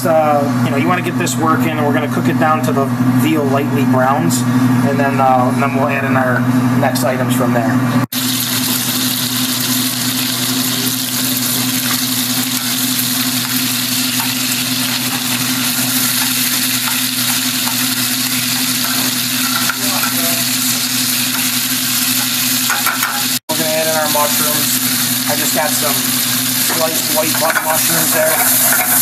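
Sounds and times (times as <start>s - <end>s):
meat sizzling in a pan: 8.1s - 29.0s
metal tongs turning meat: 10.9s - 23.4s, 25.3s - 29.0s.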